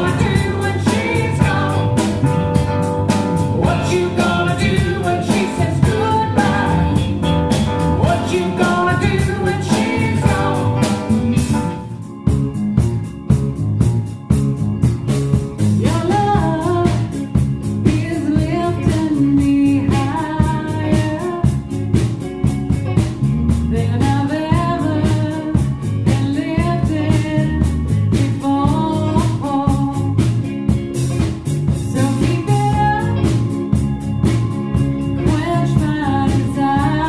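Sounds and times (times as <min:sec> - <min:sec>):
person singing lead vocal: 0:00.0 - 0:02.5, 0:03.4 - 0:11.8, 0:15.8 - 0:17.3, 0:17.9 - 0:21.6, 0:23.7 - 0:30.2, 0:31.9 - 0:33.5, 0:35.2 - 0:37.0
drum kit bass and guitar: 0:00.0 - 0:37.0.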